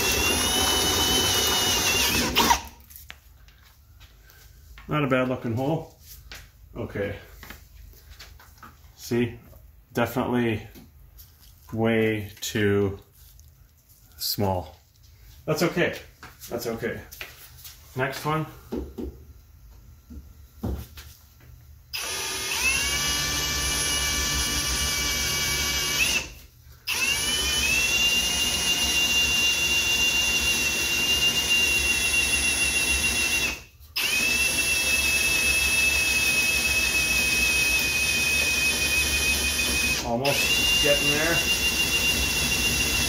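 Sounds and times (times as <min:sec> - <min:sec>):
cordless drill whining through metal: 0:00.0 - 0:02.8, 0:21.9 - 0:43.0.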